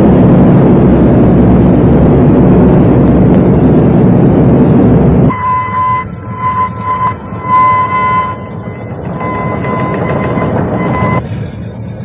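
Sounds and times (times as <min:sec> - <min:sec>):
propeller plane engines rumbling: 0:00.0 - 0:12.0.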